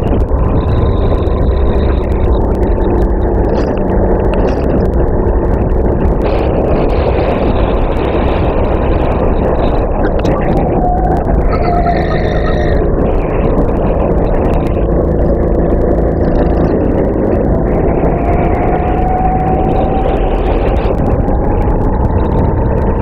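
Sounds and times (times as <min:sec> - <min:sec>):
wind rumble: 0:00.0 - 0:23.0
kart engine accelerating: 0:10.6 - 0:23.0.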